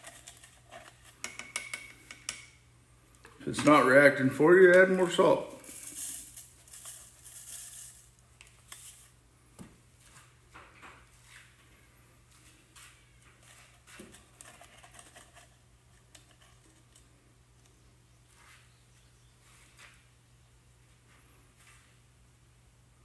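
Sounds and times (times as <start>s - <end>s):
aluminium foil crinkling: 0.0s - 1.2s.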